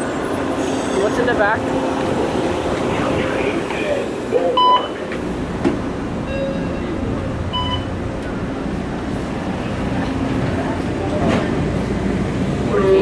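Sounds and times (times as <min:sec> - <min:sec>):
train car rumble: 0:00.0 - 0:13.0
short electronic beeps: 0:07.5 - 0:07.9.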